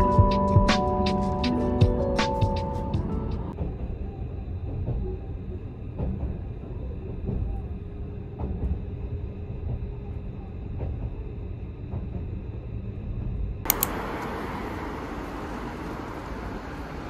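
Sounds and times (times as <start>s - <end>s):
vehicle rumble: 12.1s - 17.0s
light ticks: 13.7s - 14.3s.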